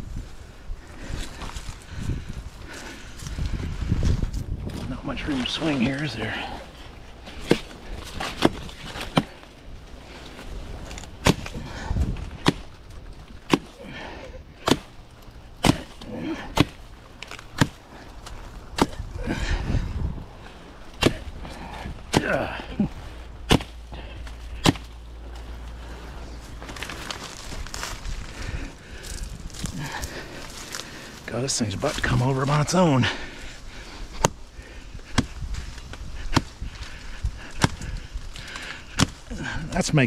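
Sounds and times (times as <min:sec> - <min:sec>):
machete chopping plant trunk: 0:07.3 - 0:09.5, 0:10.9 - 0:12.8, 0:13.4 - 0:15.0, 0:15.6 - 0:19.1, 0:20.9 - 0:22.6, 0:23.4 - 0:25.0, 0:34.2 - 0:34.4, 0:35.0 - 0:35.4, 0:36.2 - 0:39.3.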